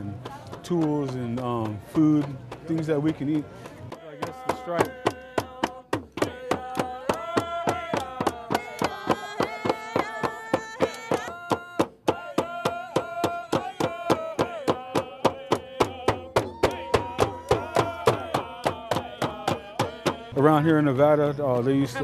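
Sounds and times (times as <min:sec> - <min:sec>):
frame drums beating: 0:00.2 - 0:20.4
group of voices singing: 0:03.9 - 0:20.9.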